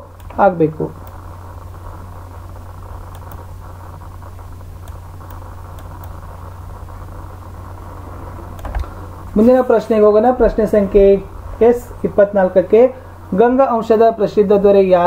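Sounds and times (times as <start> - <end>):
electrical hum and hiss: 0.0 - 15.0
faint sharp clicks: 3.1 - 3.4.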